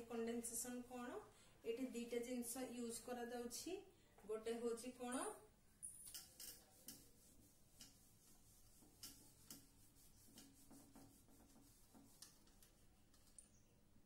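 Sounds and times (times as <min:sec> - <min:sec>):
eraser rubbing on whiteboard: 0:06.2 - 0:13.4.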